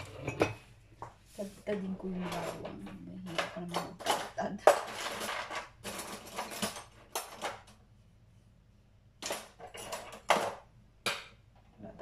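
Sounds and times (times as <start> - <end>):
kitchen utensils and dishes clattering: 0.0 - 0.7, 1.5 - 7.8, 9.2 - 10.7.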